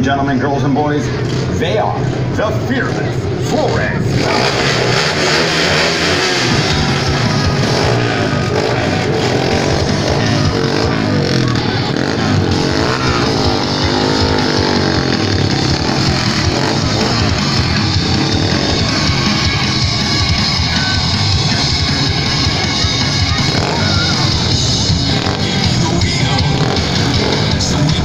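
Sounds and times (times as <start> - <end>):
loud rock music: 0.0 - 28.0
motorcycle engines revving: 0.0 - 28.0.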